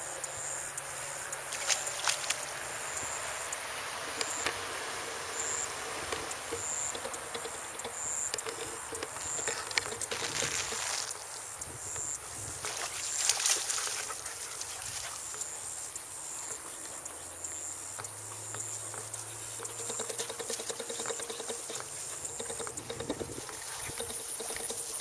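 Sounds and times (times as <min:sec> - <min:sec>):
dogs running through grass: 0:09.1 - 0:11.5, 0:12.6 - 0:15.6.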